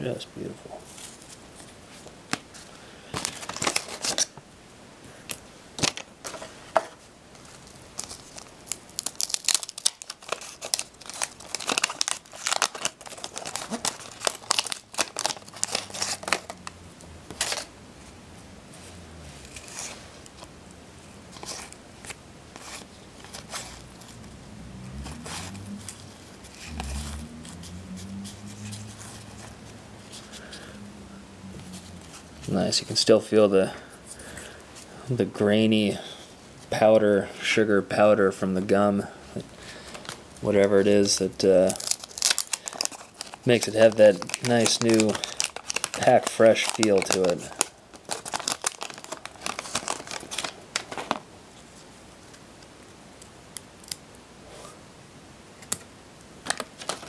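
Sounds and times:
wax paper wrapper tearing and crinkling: 3.2 - 4.3, 7.9 - 17.7, 39.9 - 51.2, 56.4 - 57.0.

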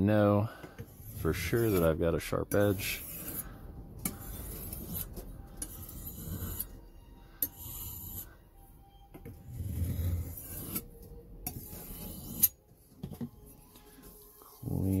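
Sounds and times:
knife grinding on sharpening stone: 0.8 - 6.8, 7.4 - 8.3, 9.4 - 12.6.

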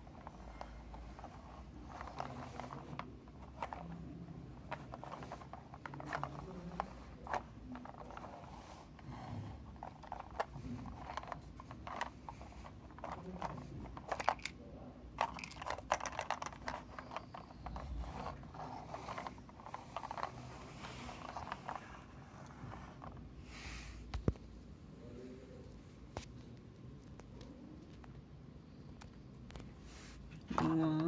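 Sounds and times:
toy parts clicking and rattling: 0.1 - 14.6, 15.2 - 22.1
toy scraping on carpet: 0.1 - 14.6, 15.2 - 23.9.

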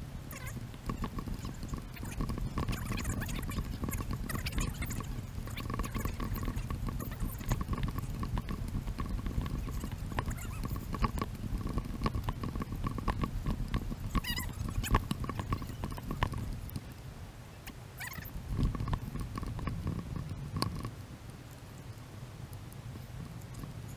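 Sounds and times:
wind rumble: 0.0 - 17.4, 18.0 - 21.5.

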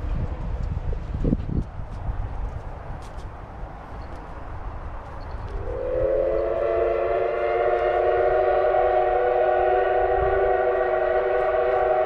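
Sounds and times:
steam locomotive whistle: 5.6 - 12.0.

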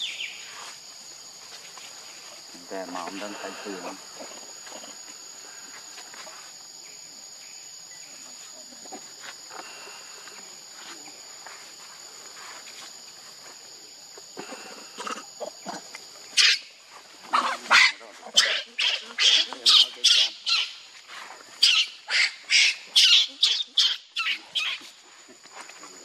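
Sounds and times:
insects droning: 0.0 - 26.0
faint rustles: 8.1 - 15.2
monkey shrieking: 16.4 - 16.7, 17.3 - 20.8, 21.6 - 24.9.

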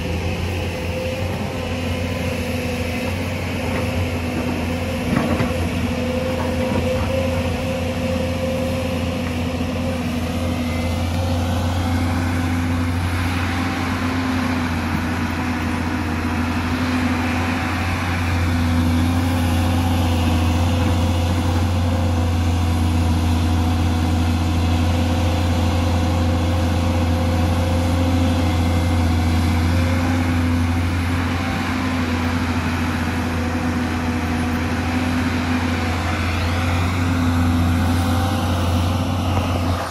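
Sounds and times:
excavator diesel engine running: 0.0 - 39.9
hydraulic whine: 25.6 - 39.9.

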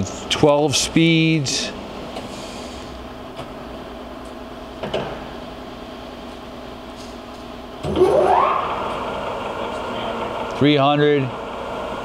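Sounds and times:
lathe humming: 7.8 - 12.0.

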